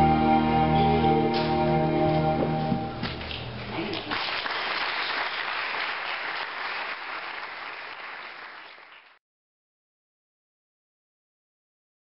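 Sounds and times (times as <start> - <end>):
congregation applauding: 3.1 - 9.2.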